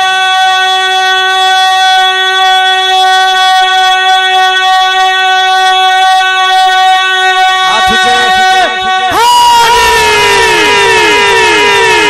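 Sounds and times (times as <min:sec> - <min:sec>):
microphone feedback howl: 0:02.6 - 0:12.0.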